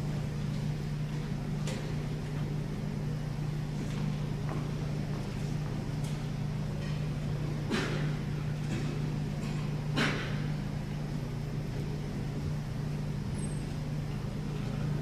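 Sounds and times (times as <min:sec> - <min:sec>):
steady low hum: 0:00.0 - 0:15.0
crowd knocks and shuffles: 0:03.6 - 0:10.7.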